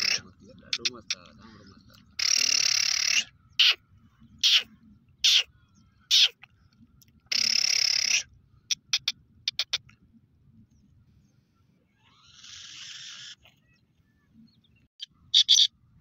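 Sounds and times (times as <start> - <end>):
bird harsh grating calls: 0.0 - 3.8, 4.4 - 6.4, 7.3 - 9.9, 11.9 - 13.8, 15.0 - 15.7.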